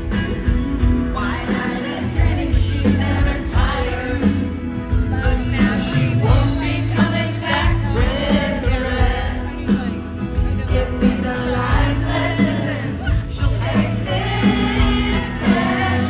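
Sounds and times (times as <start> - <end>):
live country band with singing: 0.0 - 16.0.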